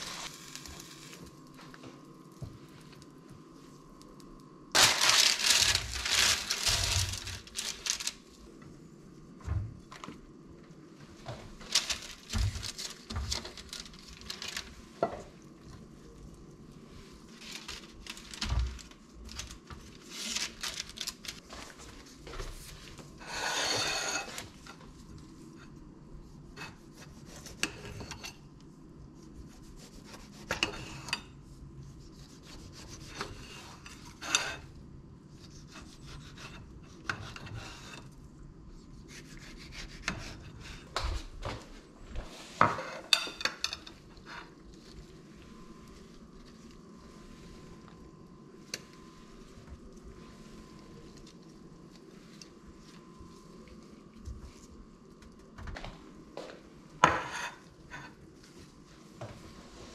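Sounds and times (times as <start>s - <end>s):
metal tongs scraping a baking tray: 23.2s - 24.5s.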